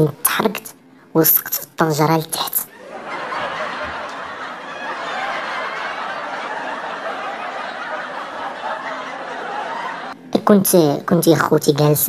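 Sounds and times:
audience laughing: 2.7s - 10.2s.

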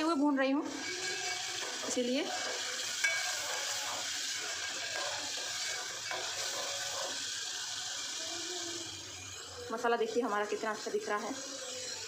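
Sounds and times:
paste sizzling in hot oil: 0.0s - 12.0s
steel spoon scraping pot: 0.0s - 12.0s.

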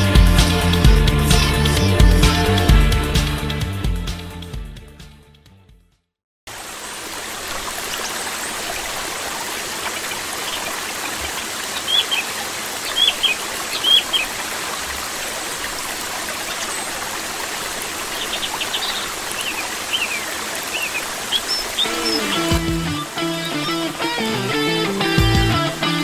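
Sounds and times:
running water: 6.5s - 26.0s
high bird chirps: 10.4s - 14.4s, 18.1s - 22.8s.

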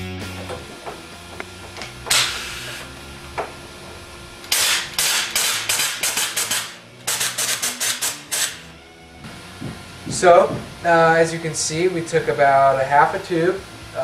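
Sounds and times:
pneumatic stapler shots with air hiss: 1.8s - 2.9s, 4.5s - 8.7s.

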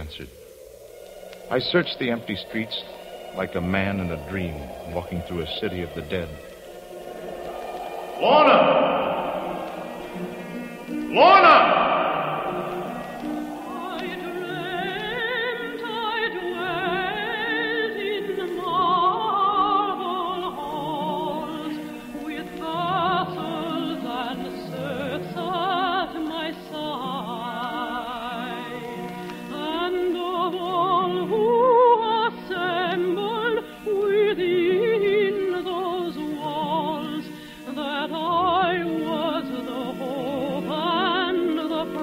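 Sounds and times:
operatic singing with vibrato: 0.0s - 42.0s
orchestral accompaniment: 1.5s - 37.2s.

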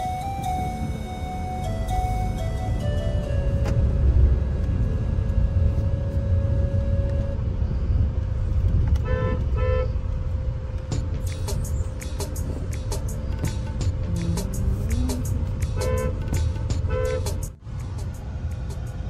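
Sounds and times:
car cabin road rumble: 1.6s - 19.0s
car horn toots: 9.0s - 10.0s, 15.7s - 17.5s.

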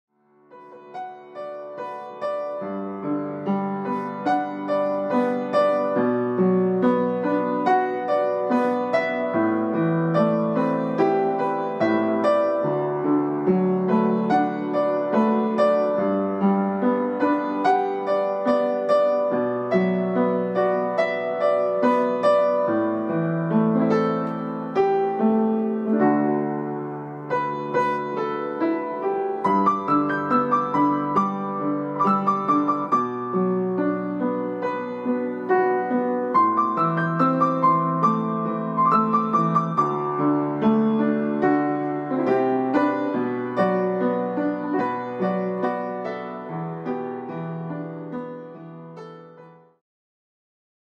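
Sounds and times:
gentle piano music: 0.1s - 49.8s.

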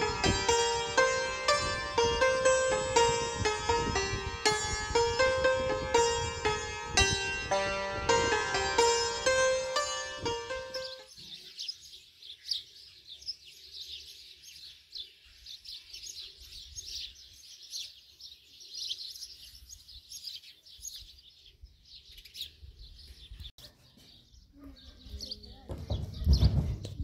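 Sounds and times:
songbirds chirping: 8.2s - 27.0s.

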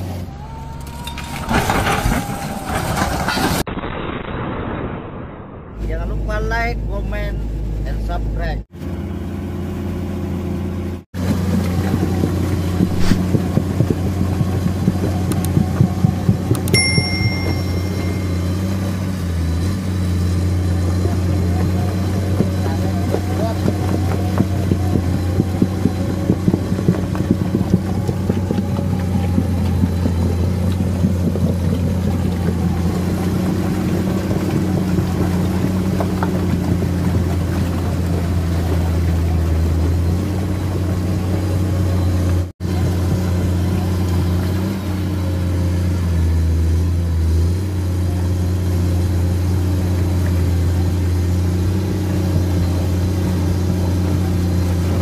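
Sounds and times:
excavator diesel engine running: 8.8s - 55.0s
short high metallic ring: 16.7s - 19.2s.

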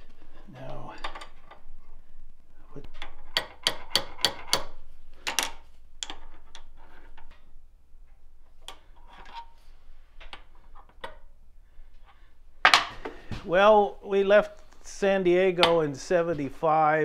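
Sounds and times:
small hammer tapping metal: 3.3s - 5.5s.

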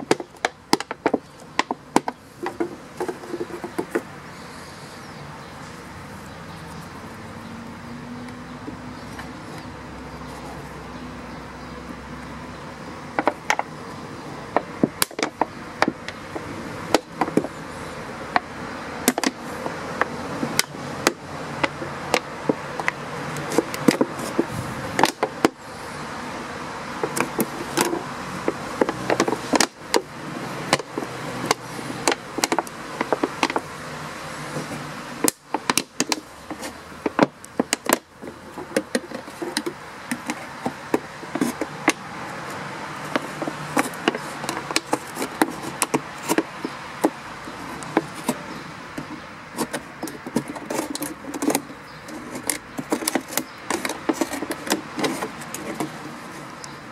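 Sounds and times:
plastic clicks and crackles: 27.0s - 33.7s, 34.5s - 56.8s
scissors cutting plastic bottle: 49.0s - 56.8s.

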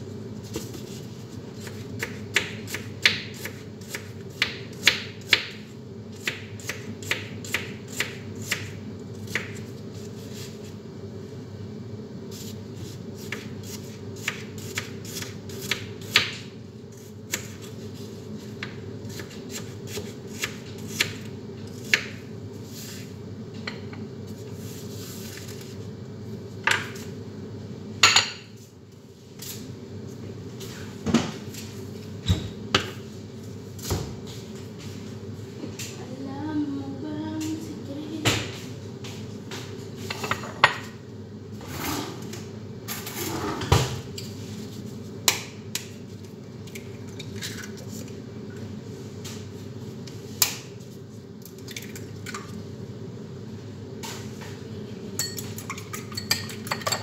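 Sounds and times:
background hum: 0.0s - 57.0s.

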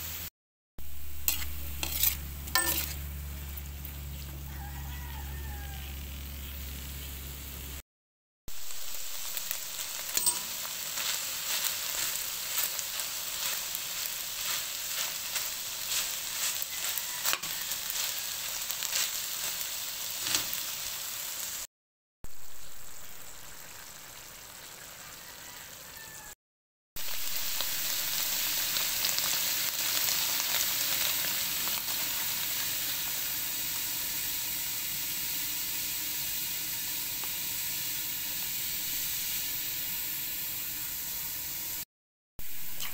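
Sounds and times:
meat sizzling in a pan: 0.0s - 7.8s, 8.5s - 21.7s, 22.3s - 26.4s, 27.0s - 42.9s
oil popping and crackling: 8.6s - 20.6s, 27.0s - 33.1s.

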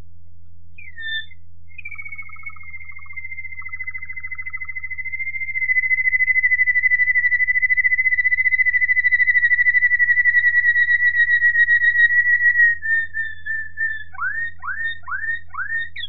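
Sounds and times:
canary singing a fast trill: 0.8s - 16.0s
fainter lower bird trill: 0.8s - 16.0s.

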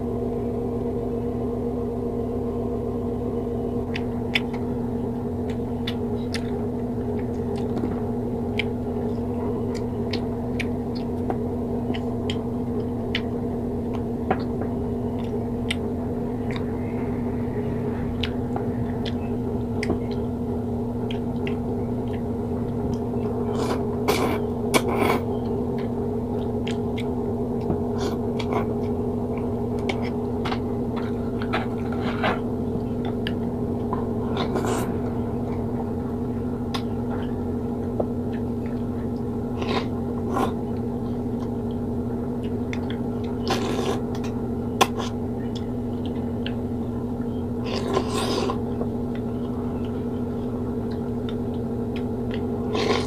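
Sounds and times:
low hum: 0.0s - 53.0s
chewing: 3.7s - 53.0s
slurping noodles: 23.5s - 25.2s, 34.2s - 35.0s, 39.6s - 40.6s, 43.4s - 44.1s, 47.7s - 48.7s, 52.6s - 53.0s.

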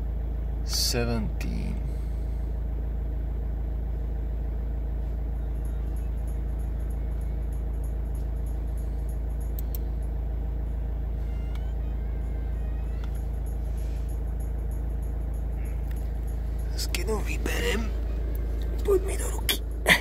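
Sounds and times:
low mechanical hum: 0.0s - 20.0s
faint high ticking: 7.7s - 10.3s.

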